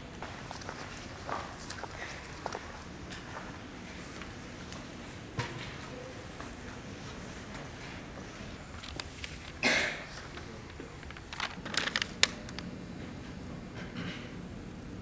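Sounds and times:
paper rustling: 0:08.4 - 0:12.6.

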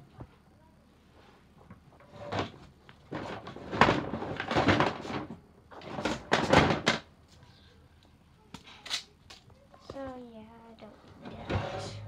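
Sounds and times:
objects clattering and bumping: 0:01.6 - 0:07.2, 0:11.1 - 0:12.0.

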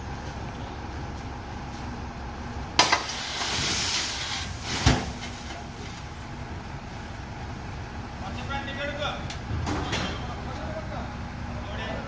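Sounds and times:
lorry engine idling: 0:05.5 - 0:12.0.

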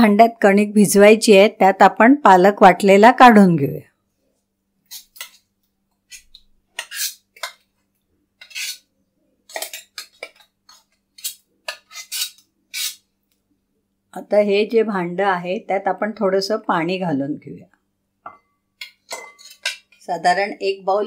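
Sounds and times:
metal spoon scraping steel jar: 0:06.1 - 0:07.6, 0:08.4 - 0:08.9, 0:09.5 - 0:13.0, 0:19.1 - 0:20.0.

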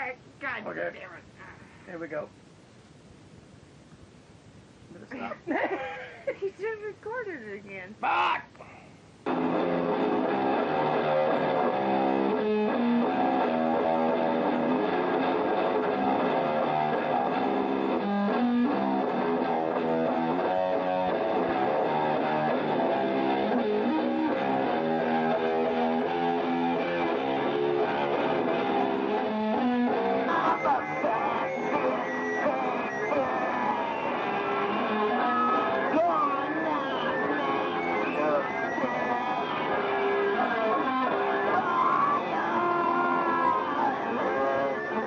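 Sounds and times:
guitar playing chords: 0:09.3 - 0:45.0.

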